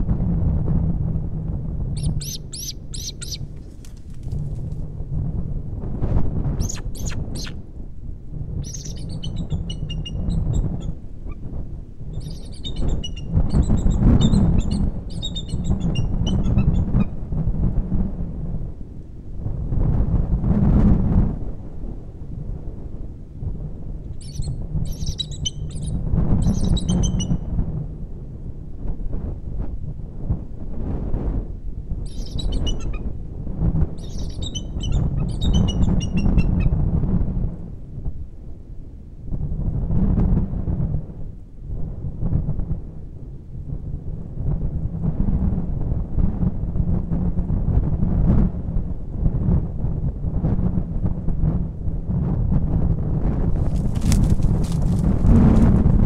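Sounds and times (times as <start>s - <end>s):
wind on microphone: 0.0s - 56.0s
eagles chittering: 2.0s - 3.5s, 6.6s - 7.6s, 8.6s - 10.7s, 12.2s - 16.9s, 24.2s - 27.3s, 32.1s - 33.0s, 34.0s - 36.4s.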